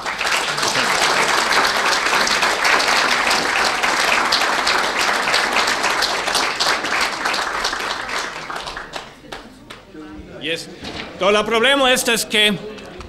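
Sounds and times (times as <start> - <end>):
audience applauding: 0.0 - 9.9.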